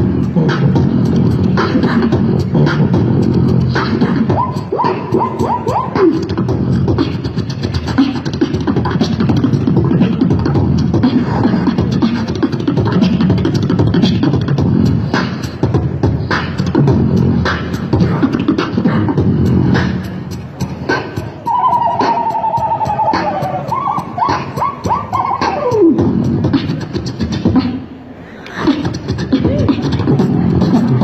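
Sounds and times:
beatboxing through speaker: 0:00.0 - 0:31.0.

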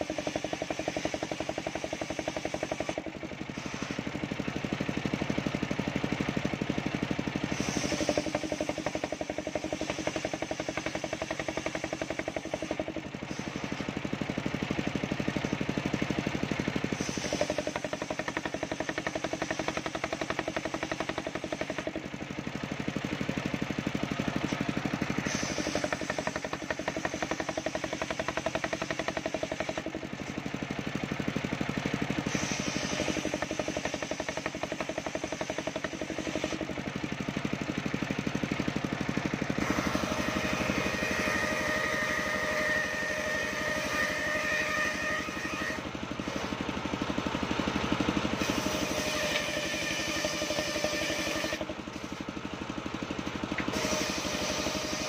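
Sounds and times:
engine running steadily: 0:00.0 - 0:55.0
circular saw ripping wood: 0:07.4 - 0:13.9, 0:24.4 - 0:30.6, 0:32.1 - 0:36.8, 0:39.6 - 0:46.6, 0:48.3 - 0:52.2, 0:53.6 - 0:55.0.

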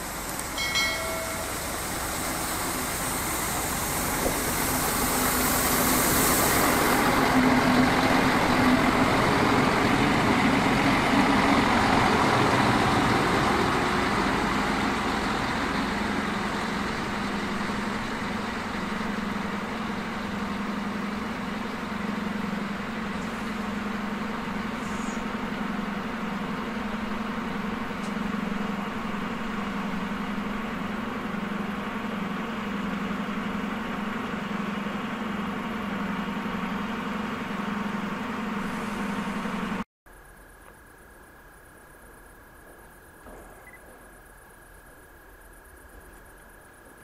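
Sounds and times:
high hiss: 0:00.0 - 0:07.4
diesel engine humming: 0:00.0 - 0:39.9.

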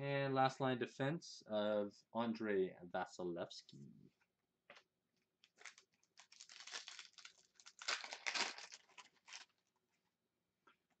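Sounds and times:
wrapper crinkling: 0:05.4 - 0:09.8.

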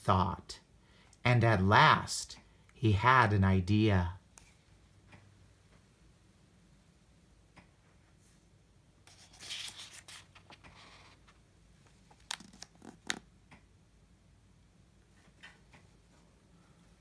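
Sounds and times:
page turning rustle: 0:09.1 - 0:13.3.

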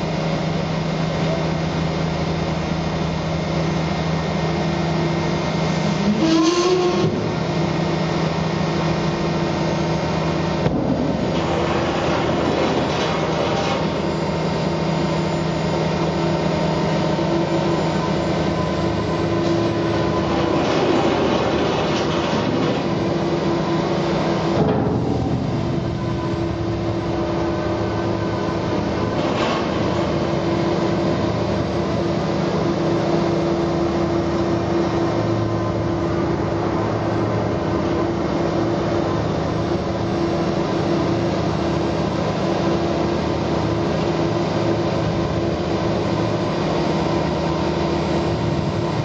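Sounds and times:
drilling rig engine drone: 0:00.0 - 0:49.0
low hum: 0:05.8 - 0:38.3.

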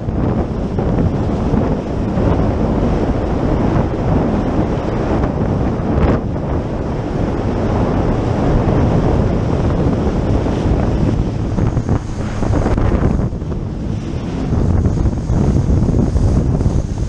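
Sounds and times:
jetski engine running: 0:00.0 - 0:17.0
water splashing along hull: 0:00.0 - 0:17.0
wind buffeting microphone: 0:00.0 - 0:17.0.

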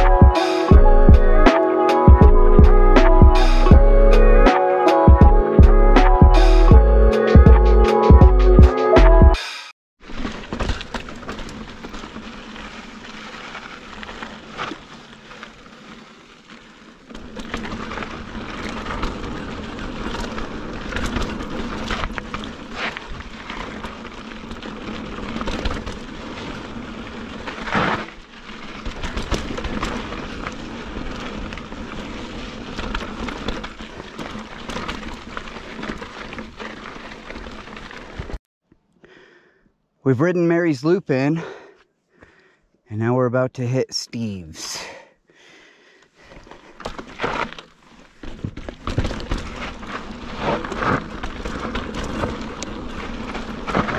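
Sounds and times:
bike tyres crunching on gravel: 0:10.0 - 0:38.4, 0:45.4 - 0:53.9
wheels knocking on rocks: 0:10.0 - 0:38.4, 0:46.2 - 0:53.9.

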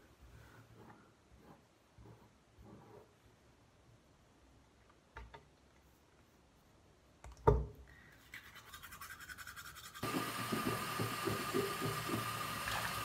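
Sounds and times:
toothbrush brushing teeth: 0:08.2 - 0:10.1
tap running into basin: 0:10.0 - 0:13.0.

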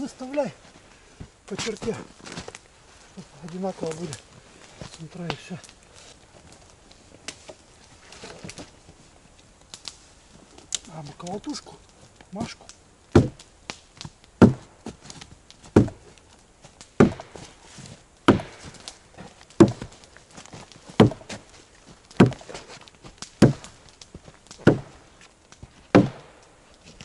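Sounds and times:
axe chopping into a log: 0:13.2 - 0:13.4, 0:14.4 - 0:14.7, 0:15.7 - 0:16.0, 0:17.0 - 0:17.5, 0:18.3 - 0:18.9, 0:19.6 - 0:20.0, 0:21.0 - 0:21.4, 0:22.2 - 0:22.8, 0:23.4 - 0:23.8, 0:24.5 - 0:25.0, 0:25.9 - 0:26.3.

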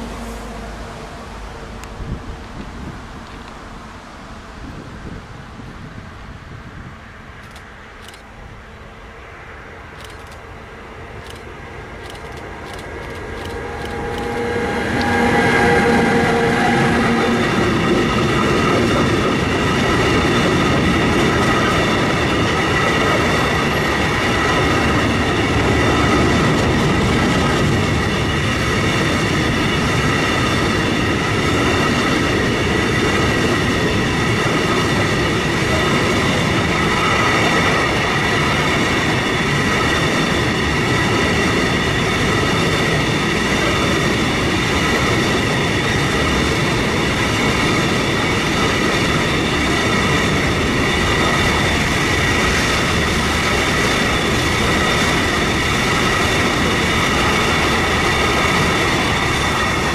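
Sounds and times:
freight train wheels rumbling on rail: 0:00.0 - 0:59.9.

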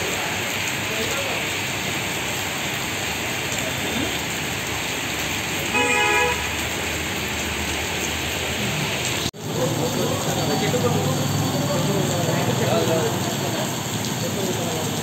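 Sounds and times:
heavy rain on a street: 0:00.0 - 0:15.0
vehicle horn: 0:05.7 - 0:06.6.

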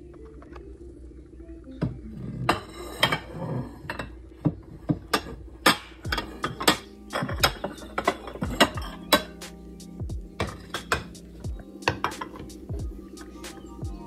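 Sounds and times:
bowls clinking together: 0:02.5 - 0:04.2, 0:04.9 - 0:09.4, 0:10.4 - 0:11.2, 0:11.9 - 0:12.5.

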